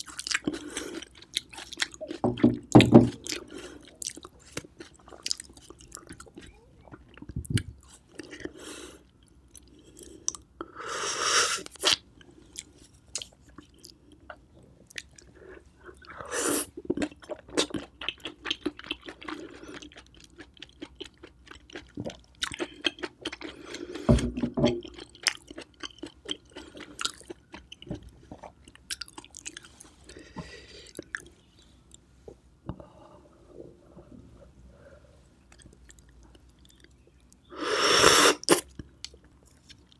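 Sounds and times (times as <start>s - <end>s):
wet chewing: 24.8s - 31.4s.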